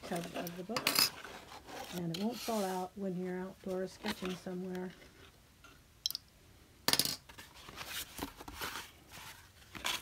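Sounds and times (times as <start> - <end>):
paper and cover rustling: 0.0 - 3.0, 3.6 - 5.2, 7.3 - 10.0.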